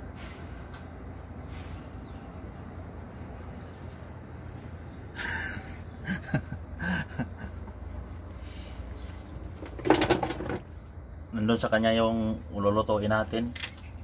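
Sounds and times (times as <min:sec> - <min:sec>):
man chuckling breathily: 0:05.1 - 0:07.8.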